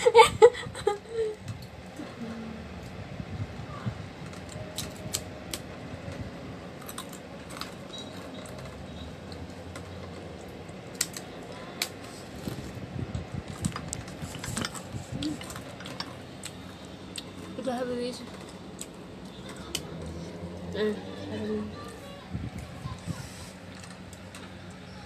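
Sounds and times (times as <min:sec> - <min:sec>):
crunching on crispy cracker: 0:06.8 - 0:09.5.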